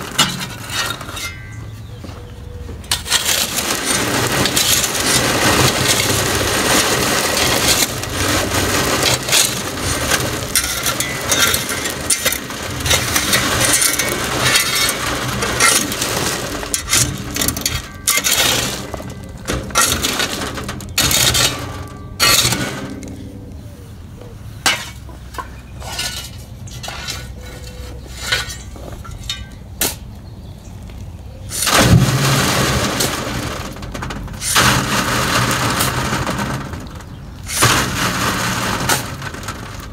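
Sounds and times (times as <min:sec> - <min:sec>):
soil rattling on sifting screen: 0:02.9 - 0:23.3, 0:31.5 - 0:39.9.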